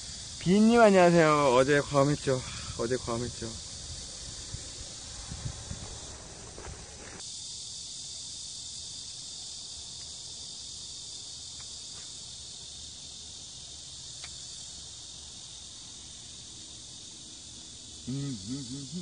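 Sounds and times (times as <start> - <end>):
insects buzzing: 0.0 - 19.0
faint ticks: 9.9 - 10.2, 11.5 - 12.1, 14.1 - 14.4.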